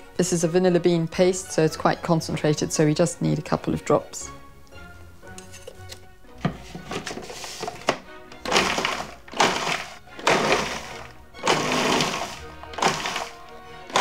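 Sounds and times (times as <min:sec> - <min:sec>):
background music: 0:00.0 - 0:14.0
food processor pulsing: 0:08.4 - 0:14.0.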